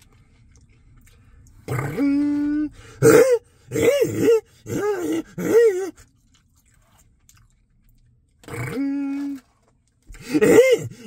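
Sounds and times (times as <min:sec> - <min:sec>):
man moaning while eating: 0:01.7 - 0:06.0, 0:08.5 - 0:09.5, 0:10.1 - 0:11.0.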